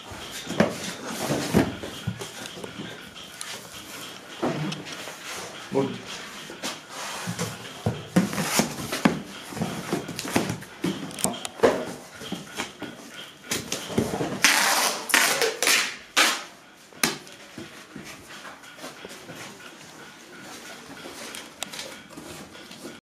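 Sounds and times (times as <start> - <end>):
packing tape tearing off roll: 14.4 - 16.5.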